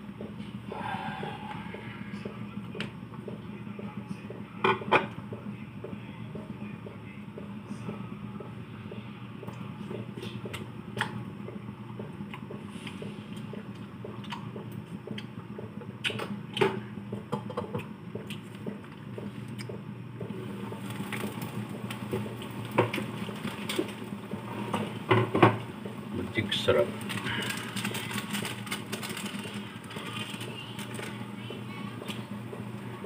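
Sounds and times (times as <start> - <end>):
boiling sauce hissing: 20.2 - 33.0.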